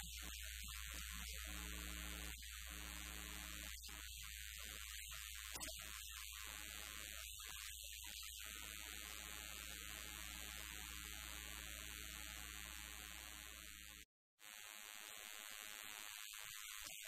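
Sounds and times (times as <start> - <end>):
steady hiss: 0.0 - 8.4.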